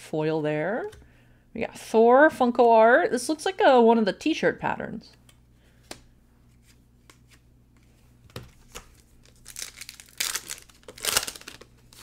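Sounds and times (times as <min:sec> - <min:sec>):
wrapper tearing and crinkling: 0:08.6 - 0:12.0.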